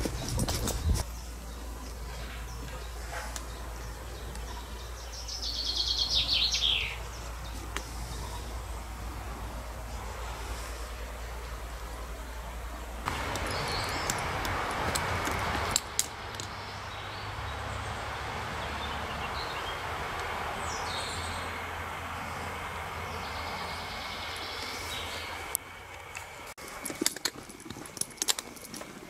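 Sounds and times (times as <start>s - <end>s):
birds calling: 0.0s - 26.5s
steady rushing noise: 7.2s - 26.6s.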